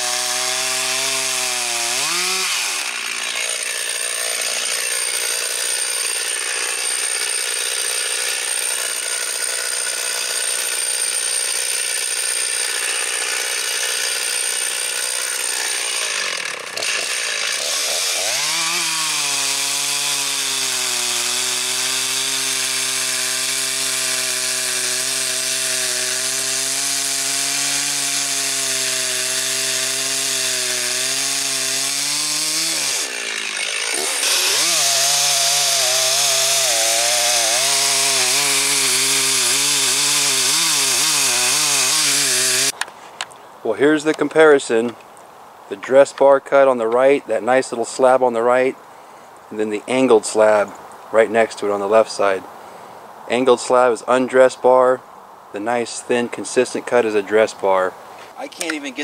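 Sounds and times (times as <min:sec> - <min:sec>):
chainsaw cutting a log: 0:00.0 - 0:42.8, 0:56.1 - 0:59.0.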